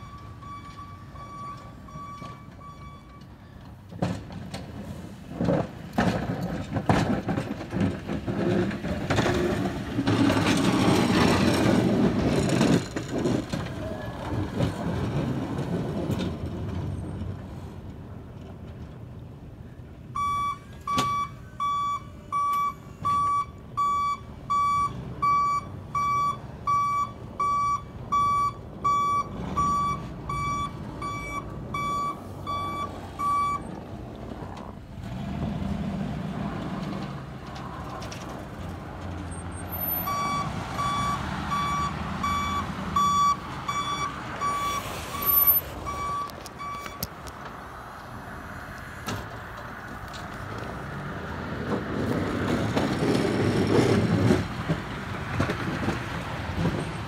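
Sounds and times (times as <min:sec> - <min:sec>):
truck backup alarm beeping: 0:00.0 - 0:03.7, 0:20.1 - 0:33.8, 0:39.3 - 0:47.2.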